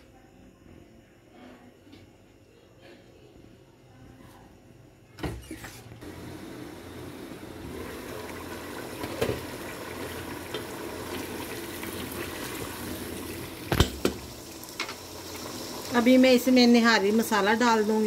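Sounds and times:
curry bubbling in pot: 6.0 - 17.7.

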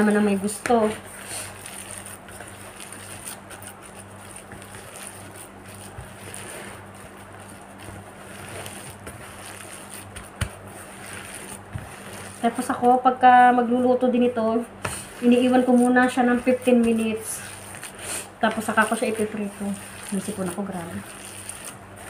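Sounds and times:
plastic glove rustle: 0.0 - 13.8, 14.4 - 22.0
steady low hum: 0.0 - 22.0
wet food squelching: 14.9 - 22.0.

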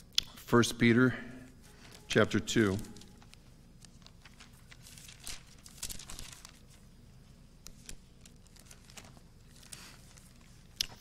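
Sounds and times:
pages being turned: 1.7 - 6.9, 7.6 - 11.0.

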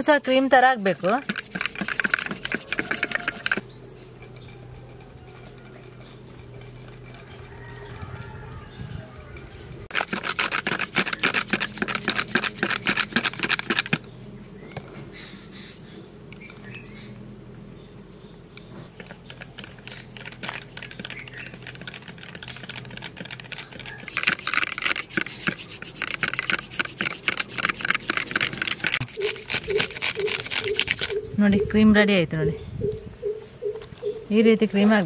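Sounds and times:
whisk rattling against glass: 0.8 - 3.6.

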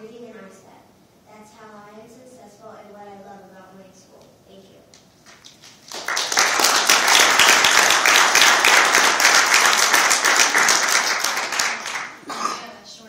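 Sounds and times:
audience applause: 5.8 - 12.2.

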